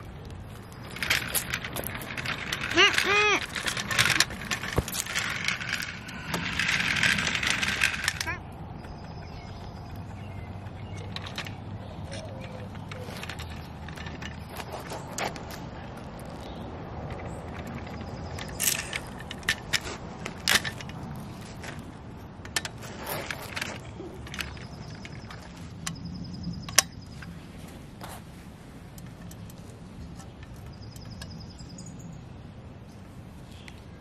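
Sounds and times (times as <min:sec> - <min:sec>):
steady background noise: 0:00.0 - 0:34.0
toy truck clicks and knocks: 0:00.2 - 0:27.3.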